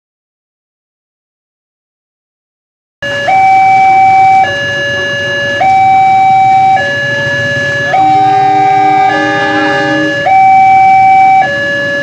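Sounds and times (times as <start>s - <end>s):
two-tone electronic crossing alarm: 3.0s - 12.0s.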